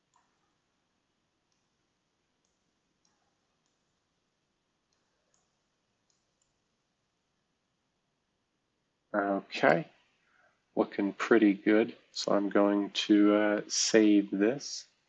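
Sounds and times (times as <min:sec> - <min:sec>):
computer mouse clicks: 0:01.5 - 0:01.7, 0:02.4 - 0:04.0, 0:04.9 - 0:06.6.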